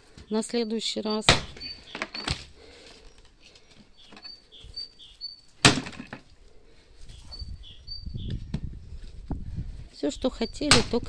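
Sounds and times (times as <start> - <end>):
small bird chirping: 0.2 - 5.6, 7.1 - 8.9, 10.2 - 10.7
axe splitting firewood: 1.2 - 2.6, 5.6 - 6.3, 10.7 - 11.0.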